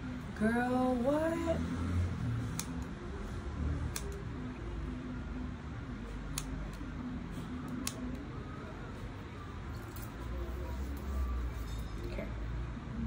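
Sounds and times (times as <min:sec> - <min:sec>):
faint music: 0:00.0 - 0:13.0
steady low hum: 0:00.0 - 0:13.0
small scissors snipping hair: 0:02.5 - 0:02.9, 0:03.9 - 0:04.2, 0:06.3 - 0:06.8, 0:07.7 - 0:08.1.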